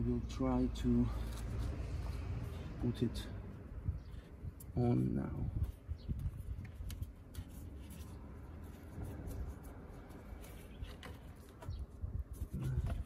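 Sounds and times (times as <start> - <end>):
gloved fingers rubbing: 5.8 - 13.0.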